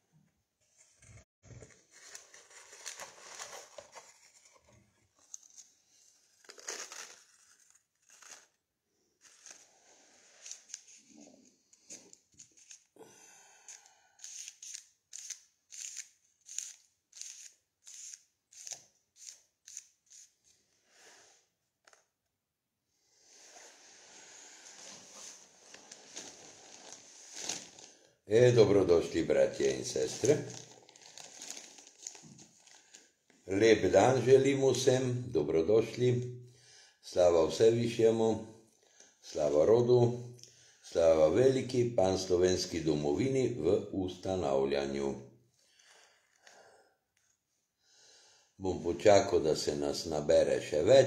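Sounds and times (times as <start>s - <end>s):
hands rustling paper: 24.8s - 28.0s, 29.9s - 33.0s.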